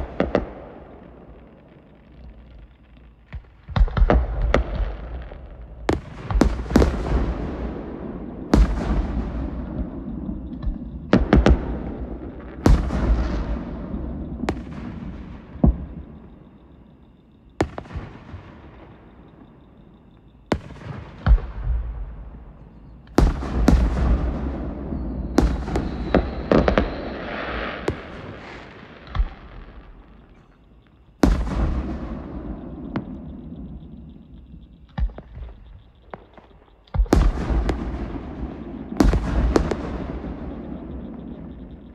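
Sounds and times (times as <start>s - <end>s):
fireworks bursting with echoes: 0.0s - 41.9s.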